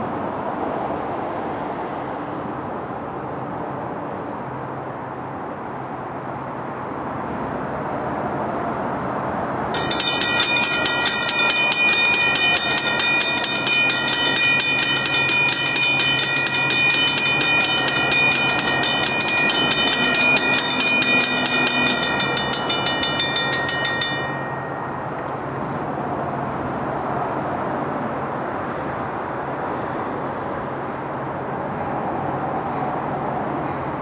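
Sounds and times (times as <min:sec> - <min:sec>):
railroad crossing bell ringing: 0:09.8 - 0:26.4.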